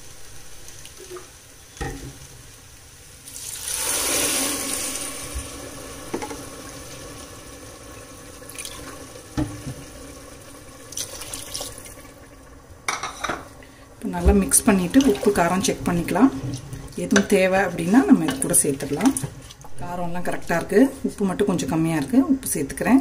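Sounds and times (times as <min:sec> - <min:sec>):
water poured into pot: 0:03.2 - 0:13.8.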